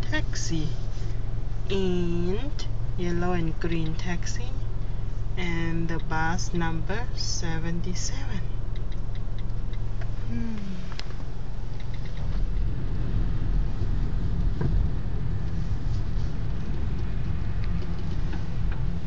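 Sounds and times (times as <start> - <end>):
car engine humming: 0.0 - 19.0.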